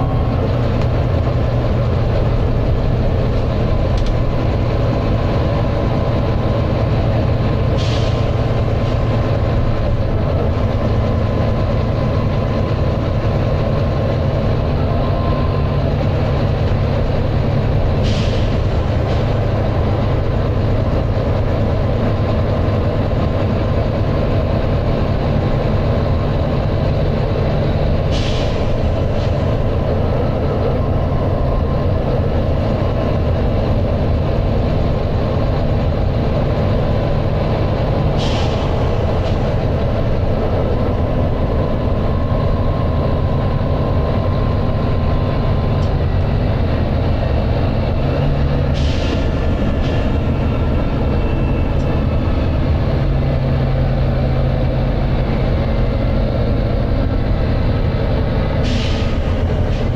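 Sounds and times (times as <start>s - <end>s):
bus diesel engine drone: 0.0s - 59.9s
air hissing from bus brakes: 7.6s - 9.0s, 17.9s - 19.4s, 28.0s - 29.6s, 38.0s - 39.7s, 48.7s - 51.8s, 58.5s - 59.9s.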